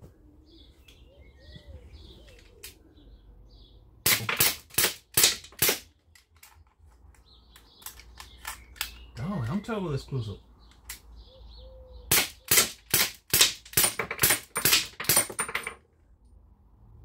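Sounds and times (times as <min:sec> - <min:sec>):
air pistol shots cracking: 0:04.0 - 0:06.0, 0:12.1 - 0:15.4.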